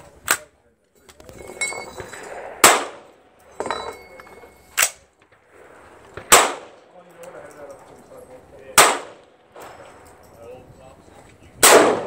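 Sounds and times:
rifle shots: 0:02.2 - 0:03.4, 0:04.8 - 0:07.0, 0:08.7 - 0:10.1, 0:11.6 - 0:12.0.

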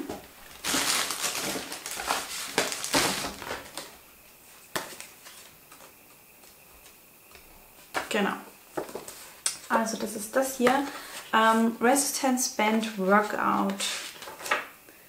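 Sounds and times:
paper and packaging rustling: 0:00.4 - 0:04.0.

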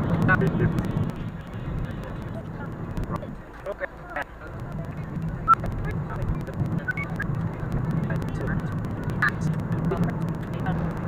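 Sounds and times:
road and engine hum: 0:00.0 - 0:11.0
squeaky sped-up voices: 0:04.1 - 0:07.3.

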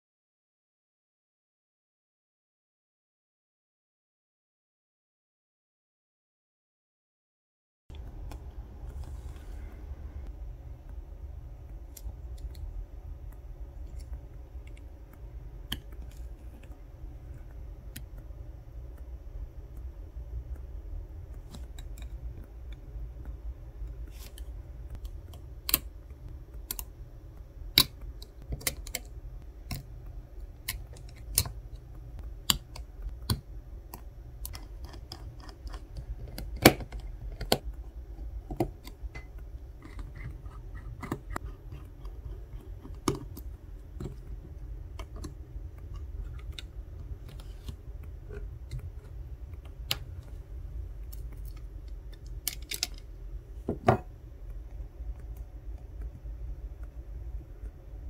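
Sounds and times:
low steady hum: 0:07.9 - 0:58.0
tools clicking and tapping on phone: 0:27.7 - 0:50.4.

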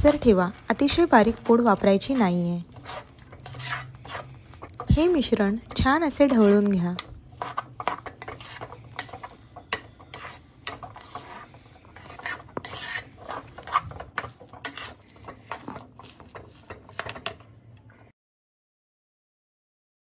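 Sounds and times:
spatula scraping in a pan: 0:00.0 - 0:18.1.

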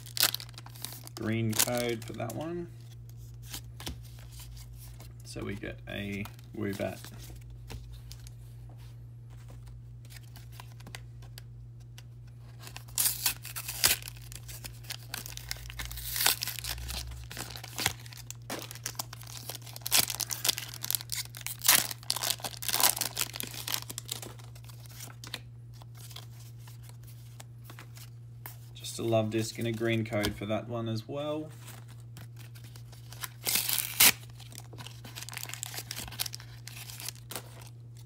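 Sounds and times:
foil wrapper tearing and crinkling: 0:00.0 - 0:02.5, 0:12.5 - 0:26.9, 0:32.2 - 0:37.7.

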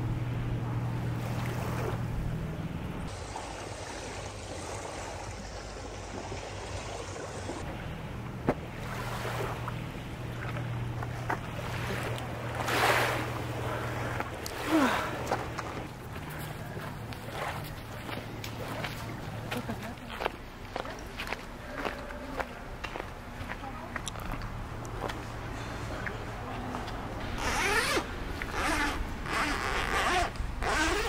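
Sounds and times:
low motor hum: 0:00.0 - 0:31.0
outdoor background noise: 0:00.0 - 0:31.0
person swimming splashes: 0:08.7 - 0:10.6, 0:11.2 - 0:20.0.

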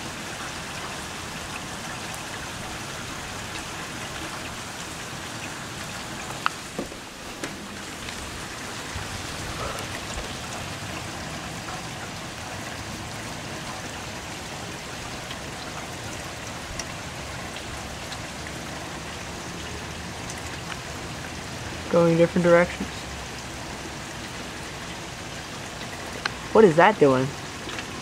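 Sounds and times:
steady rain hiss: 0:00.0 - 0:28.0
faint sharp drip ticks: 0:16.7 - 0:17.0.

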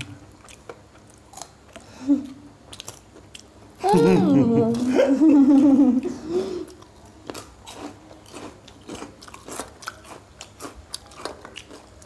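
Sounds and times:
crunching and chewing crisp food: 0:00.0 - 0:03.8, 0:06.6 - 0:12.0.

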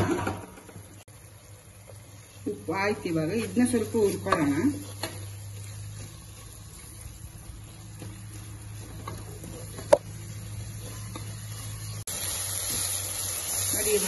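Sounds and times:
soft sizzle of frying: 0:00.0 - 0:14.0
wooden spoon scraping a pot: 0:03.4 - 0:07.1.

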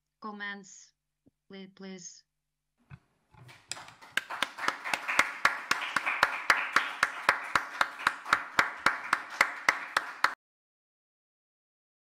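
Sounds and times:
audience applauding: 0:03.4 - 0:10.4
nearby hands clapping: 0:03.4 - 0:10.4.

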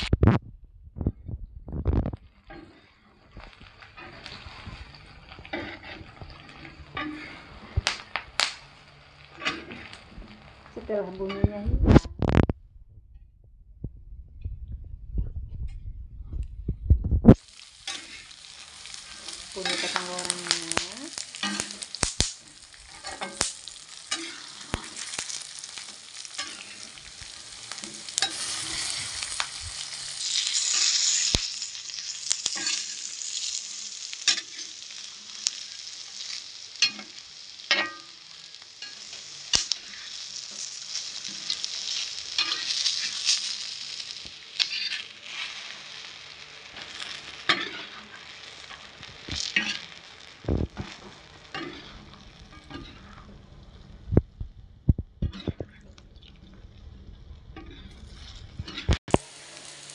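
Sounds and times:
spatula scraping and knocking pan: 0:01.0 - 0:12.5, 0:17.3 - 0:33.6, 0:36.2 - 0:53.5
peanuts sizzling in oil: 0:01.7 - 0:12.5, 0:17.3 - 0:54.2, 0:54.9 - 0:59.9.

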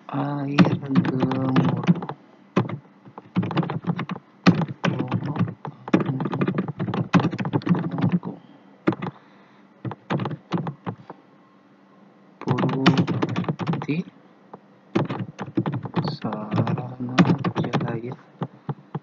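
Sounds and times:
keyboard typing: 0:00.5 - 0:09.2, 0:09.8 - 0:11.2, 0:12.4 - 0:14.1, 0:15.0 - 0:19.0.

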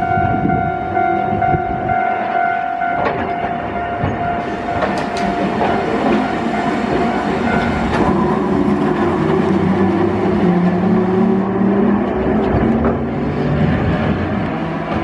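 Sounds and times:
steady high tone: 0:00.0 - 0:11.2
tram wheels clacking over rails: 0:00.0 - 0:15.0.

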